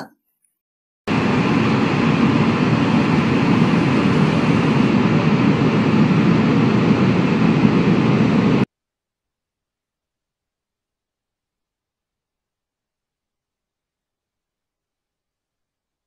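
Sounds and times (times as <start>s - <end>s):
steady low rushing noise: 1.1s - 8.7s.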